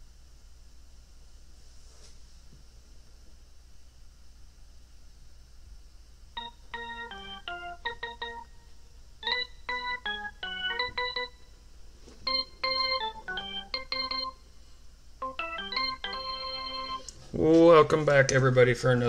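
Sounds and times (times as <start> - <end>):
electronic organ music: 6.4 - 11.6, 12.2 - 14.5, 15.2 - 17.2.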